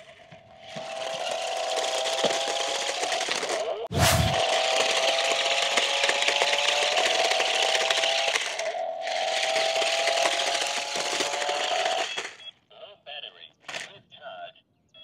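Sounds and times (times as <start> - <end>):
plastic wheels grinding on asphalt: 0.0 - 12.4
toy car motors whining: 0.0 - 12.5.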